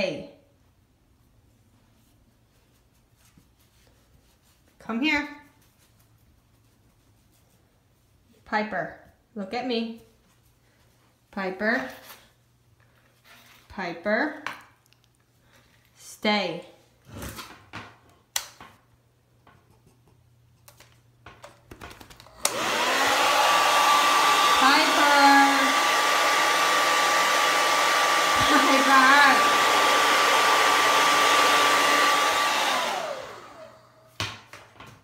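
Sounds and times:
hair dryer running: 22.2s - 34.2s.

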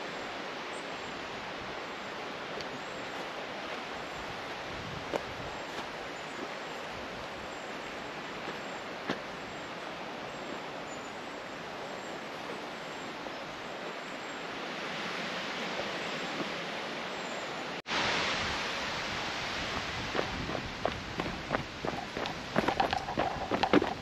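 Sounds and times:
outdoor rushing noise: 17.9s - 24.0s.

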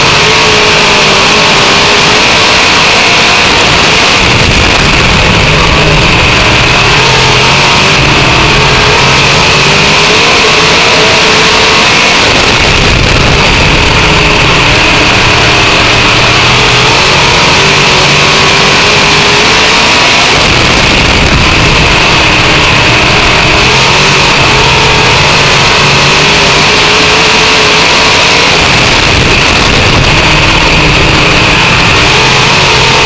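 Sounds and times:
race car engine revving: 0.0s - 33.0s
wind rushing: 20.3s - 26.4s.

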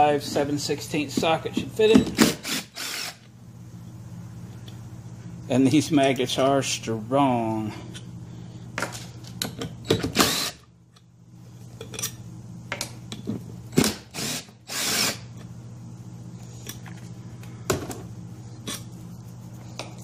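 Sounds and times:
steady low hum: 0.0s - 20.0s
cordless drill spinning bolts: 2.2s - 3.2s, 10.2s - 10.6s, 14.1s - 15.2s.

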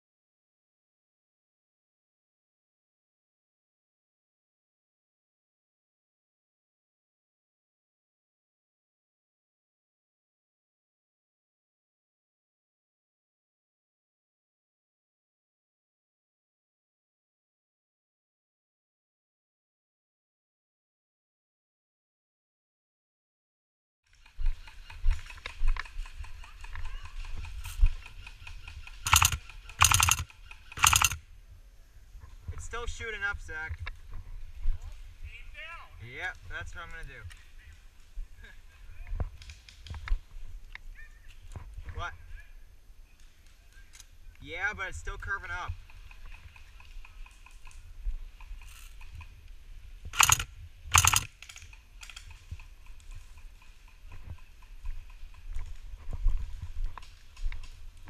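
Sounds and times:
airsoft gun full-auto bursts: 28.4s - 31.2s, 50.2s - 51.7s.

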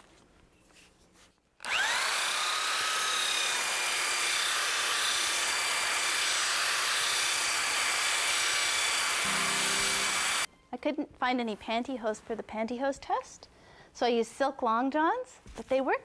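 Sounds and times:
belt sander motor whining: 1.6s - 10.5s
belt sanding wood: 1.7s - 10.5s.

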